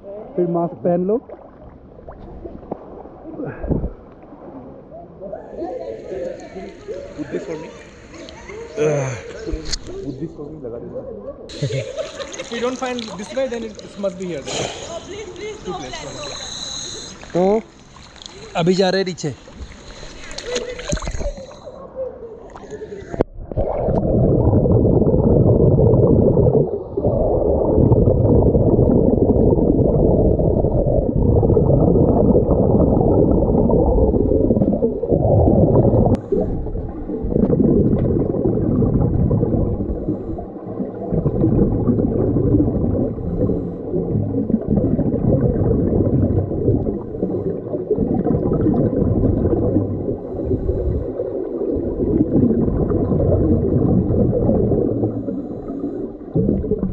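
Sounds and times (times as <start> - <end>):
underwater regulator rumble: 22.6 - 56.9
exhaust bubbles: 23.2 - 56.9.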